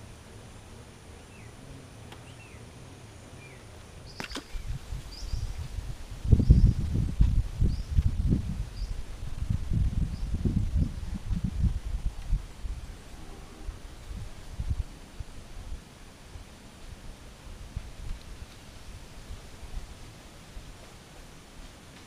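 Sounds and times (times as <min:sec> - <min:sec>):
small birds chirping: 0:01.1 - 0:09.1, 0:10.0 - 0:11.4
wind buffeting microphone: 0:04.1 - 0:20.9.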